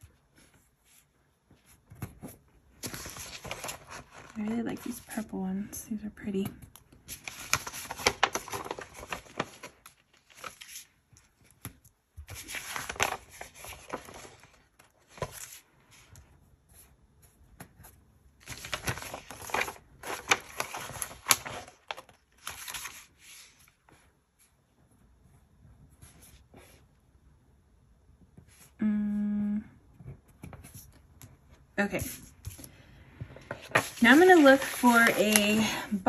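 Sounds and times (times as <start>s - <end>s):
paper rustling and crinkling: 0.0s - 5.4s, 6.6s - 25.0s, 32.0s - 36.0s.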